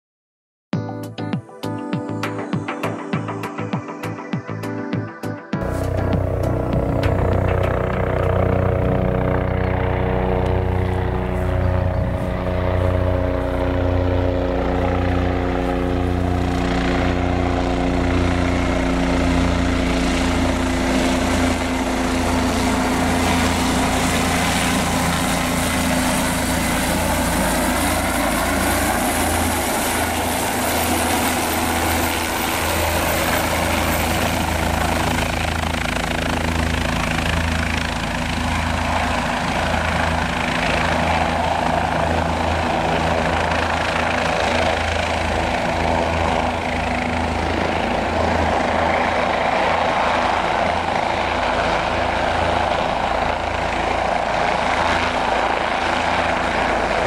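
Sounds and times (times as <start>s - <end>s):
helicopter rushing noise: 2.1s - 57.0s
helicopter rotor pulsing: 2.3s - 57.0s
steady humming tones: 5.6s - 37.6s.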